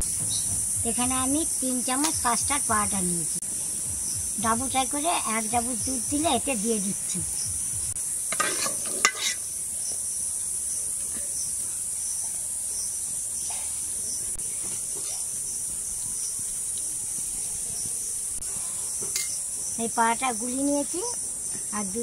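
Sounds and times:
insects chorus: 0:00.0 - 0:22.0
metal spoon clinking steel bowl: 0:08.3 - 0:09.4, 0:19.2 - 0:19.4.

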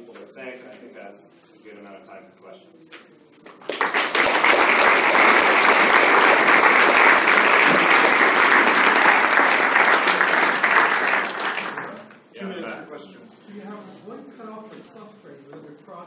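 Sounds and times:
audience applauding: 0:03.5 - 0:12.1.

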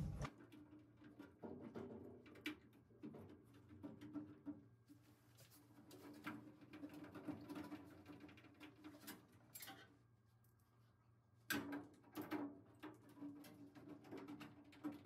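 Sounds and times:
low steady hum: 0:00.0 - 0:00.3.

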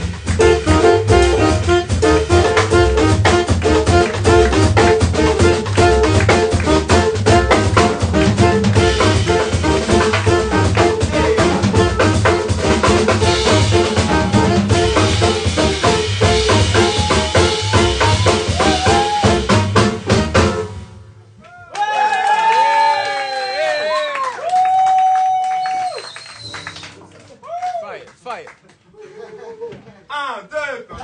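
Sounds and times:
saxophone: 0:00.0 - 0:21.0
drum kit: 0:00.0 - 0:21.4
jazz band playing: 0:00.0 - 0:21.4, 0:26.2 - 0:27.4.

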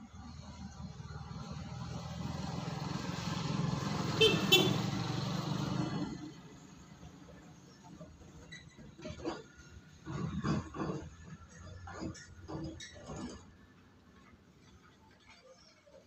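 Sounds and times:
vehicle driving past: 0:00.0 - 0:07.8
horn toots: 0:04.0 - 0:05.1.

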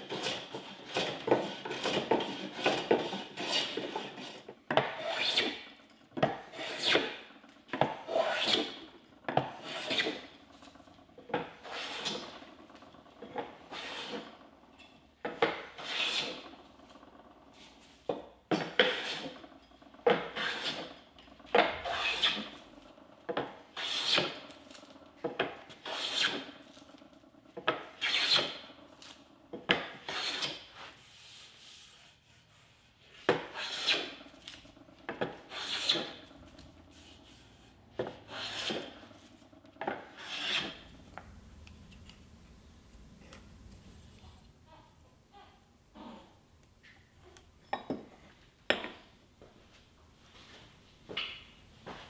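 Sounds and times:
hand plane rasping on wood: 0:00.0 - 0:10.4, 0:11.3 - 0:12.6, 0:13.2 - 0:14.4, 0:15.4 - 0:16.6, 0:18.6 - 0:19.4, 0:20.0 - 0:22.6, 0:23.4 - 0:24.5, 0:25.6 - 0:26.6, 0:27.7 - 0:28.7, 0:29.7 - 0:34.3, 0:35.1 - 0:41.0.

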